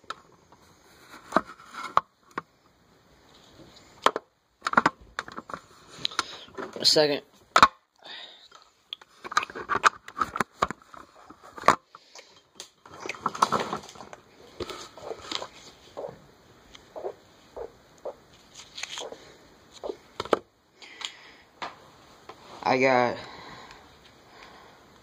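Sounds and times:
handling clicks and rustles: 9.0 - 21.1.

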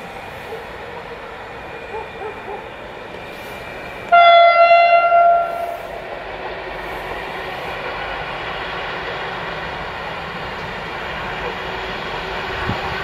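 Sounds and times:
train rumble: 0.0 - 13.0
train horn blast: 4.1 - 5.9.

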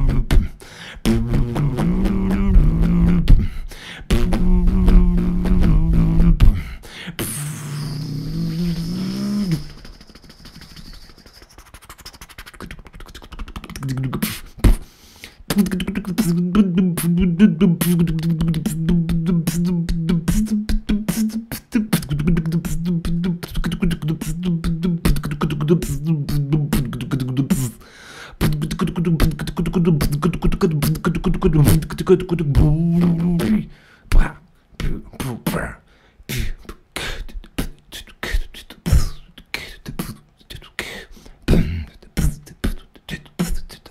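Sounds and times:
beatboxing into a microphone: 0.0 - 43.9
low voiced bass line: 1.1 - 3.4, 4.1 - 6.7, 28.6 - 33.6.

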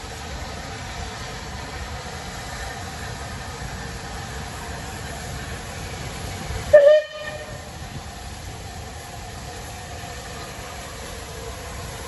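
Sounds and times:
steam locomotive rumble and hiss: 0.0 - 12.0
steam whistle blast: 6.7 - 7.7.

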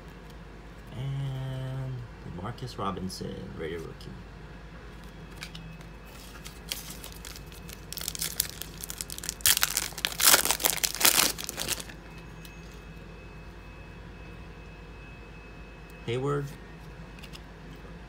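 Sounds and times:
foil tearing and crackling: 6.1 - 12.0
foil wrapper crinkling: 6.1 - 12.1.

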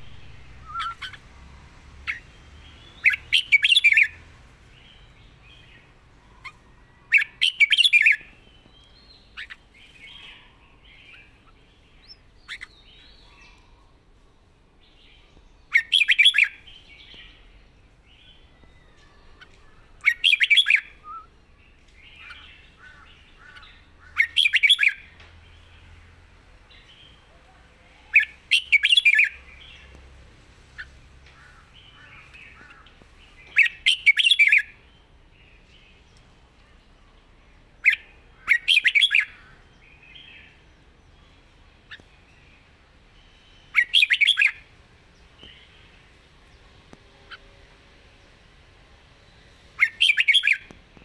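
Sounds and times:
soft bird chattering: 0.0 - 1.3, 11.1 - 13.8
bird song phrases: 0.0 - 51.0.

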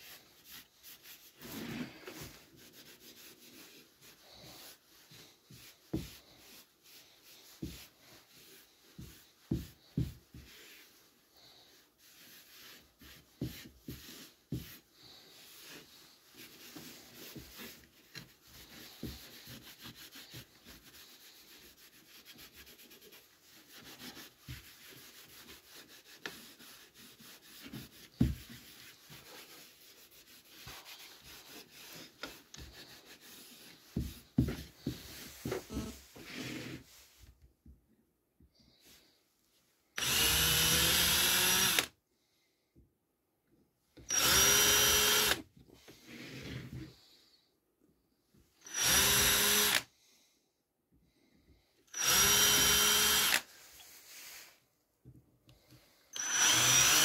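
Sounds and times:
cloth rag scrubbing wood: 0.0 - 37.3.

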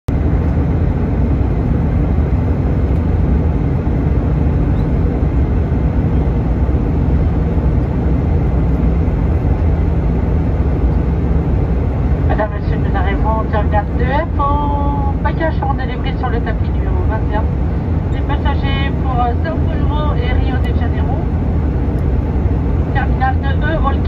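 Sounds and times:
jet engine rumble: 0.1 - 24.0
rushing air: 17.5 - 18.1.

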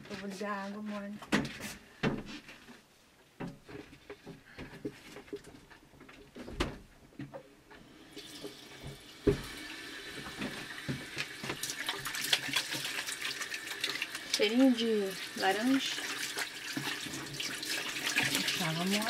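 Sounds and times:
tap water running into basin: 8.1 - 19.0
water splashing: 10.2 - 19.0.

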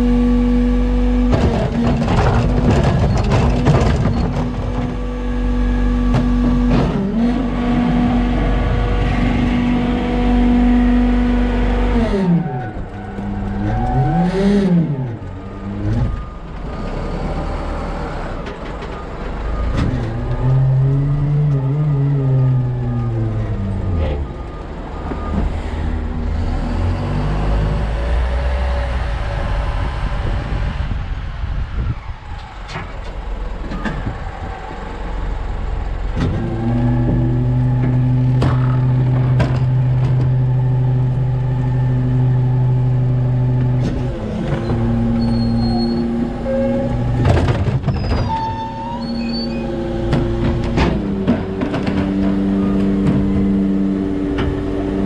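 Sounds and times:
garbage truck engine: 0.0 - 55.0
cart banging into hopper: 47.0 - 48.6, 50.0 - 53.6.

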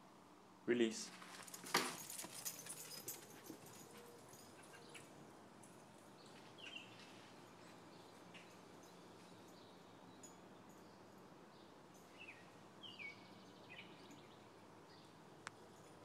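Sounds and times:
faint outdoor background: 0.0 - 16.0
dog claws clattering and scraping: 1.2 - 6.3.

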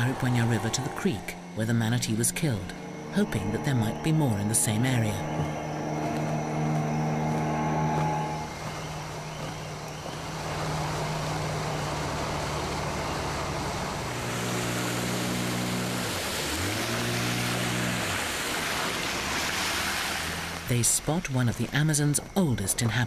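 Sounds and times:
outboard motor droning: 0.0 - 23.0
rushing water: 0.0 - 23.0
wind hiss: 8.0 - 21.4.

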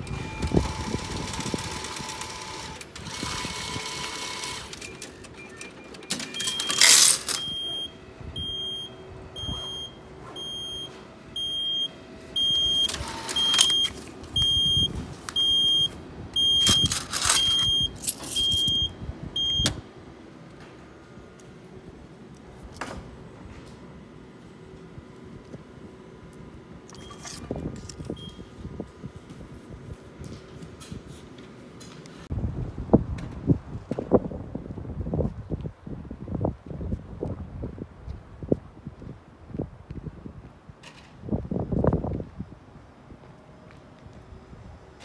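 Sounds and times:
ticket machine mechanical whirr: 0.0 - 19.8, 26.8 - 28.4
coins clattering into tray: 6.6 - 7.4.

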